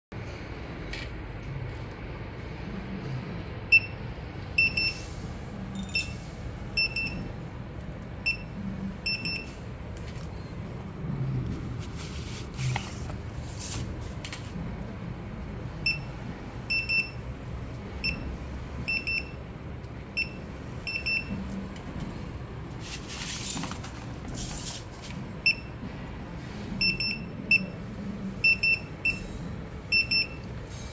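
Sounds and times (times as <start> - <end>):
handling noises: 21.3 - 25.3
coding printer beeping: 26.8 - 29.3.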